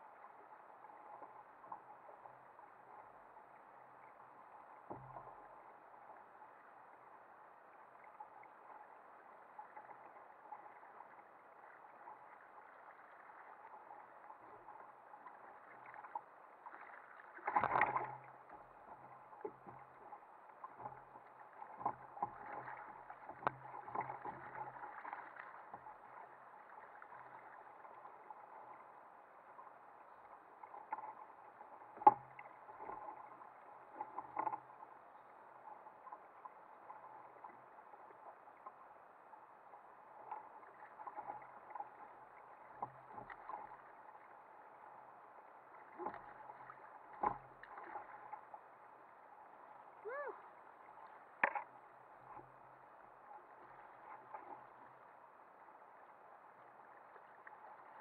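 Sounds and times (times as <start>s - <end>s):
water and wind hiss: 0.0s - 58.0s
knocks and clicks on kayak: 51.4s - 52.4s.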